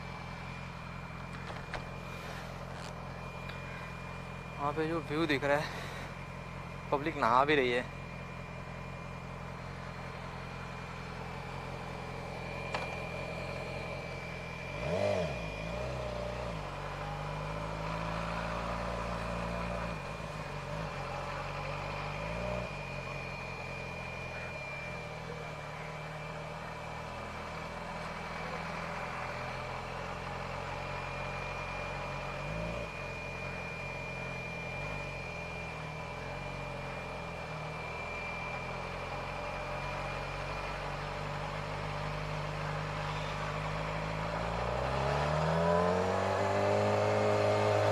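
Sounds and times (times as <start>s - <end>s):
motorcycle engine running: 0.0s - 47.9s
motorcycle throttle blips: 8.3s - 25.1s.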